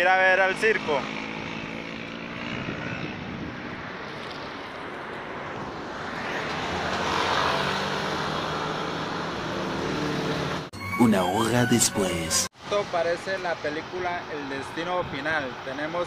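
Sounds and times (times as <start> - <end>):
road traffic passing: 0.0 - 10.8, 11.4 - 16.0.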